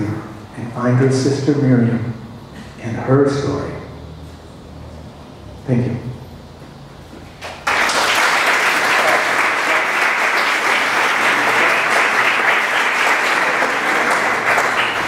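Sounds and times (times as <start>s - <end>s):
crowd applauding: 7.4s - 15.0s.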